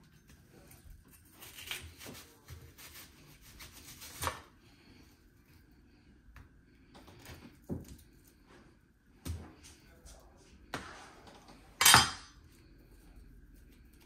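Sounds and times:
knife cutting peppers: 0.0s - 4.5s.

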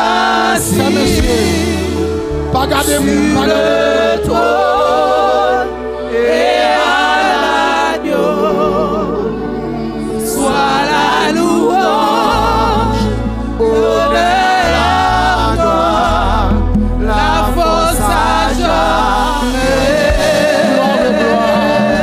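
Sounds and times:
women singing gospel song: 0.0s - 22.0s.

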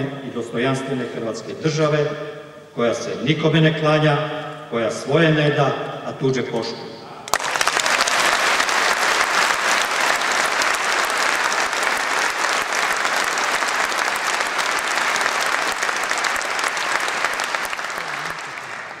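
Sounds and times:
audience applauding: 7.3s - 19.0s.

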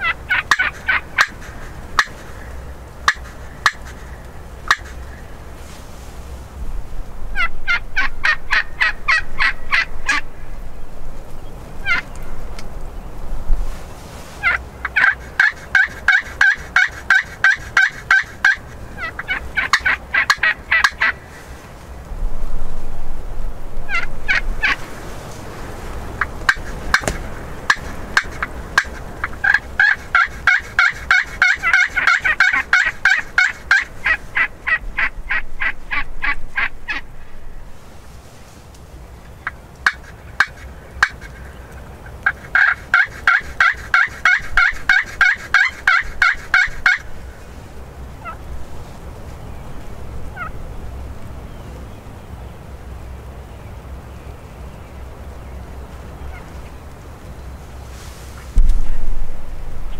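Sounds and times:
wild turkeys gobbling: 0.0s - 5.7s, 7.3s - 10.5s, 11.8s - 12.3s, 14.3s - 21.8s, 23.9s - 37.6s, 39.2s - 48.5s, 50.2s - 50.7s, 56.3s - 56.6s.

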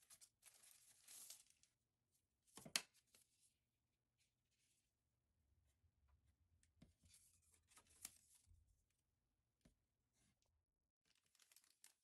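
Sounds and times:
paper and plastic rustling: 11.1s - 12.0s.

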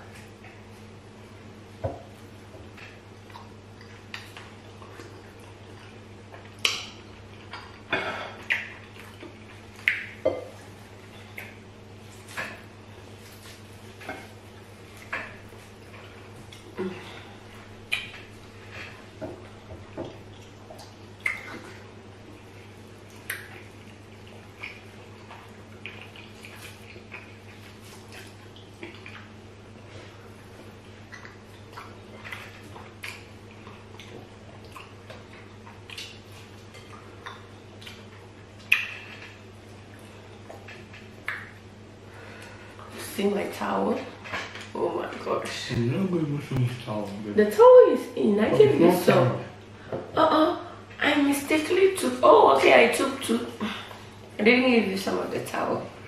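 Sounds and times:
steady low hum: 0.0s - 56.0s
wet eating smacks and clicks: 2.0s - 16.8s, 17.8s - 18.6s, 19.3s - 29.4s, 30.6s - 41.8s.

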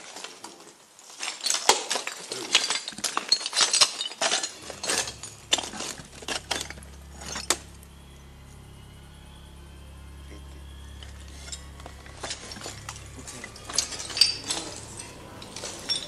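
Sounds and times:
low steady hum: 4.3s - 16.0s
fast irregular sharp clicks and clinks: 10.7s - 16.0s.

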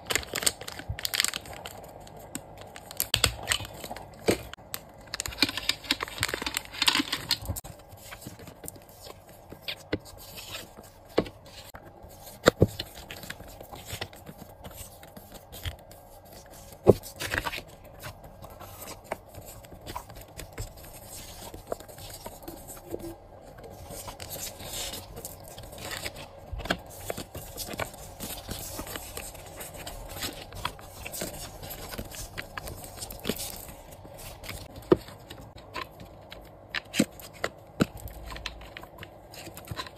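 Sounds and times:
plastic bag crinkling: 0.0s - 7.7s
paper cards rustling and tapping: 0.0s - 39.9s.

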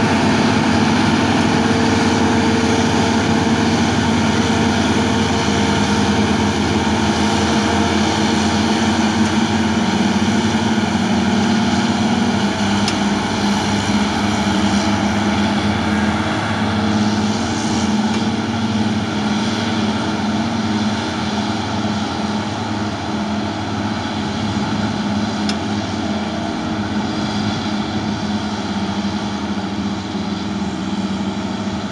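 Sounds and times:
heavy diesel engines running: 0.0s - 31.9s.

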